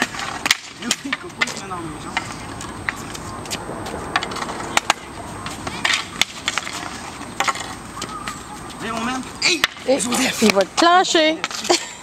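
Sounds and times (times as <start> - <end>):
sticks striking ball: 0.0 - 8.5
hockey sticks scraping on pavement: 0.0 - 12.0.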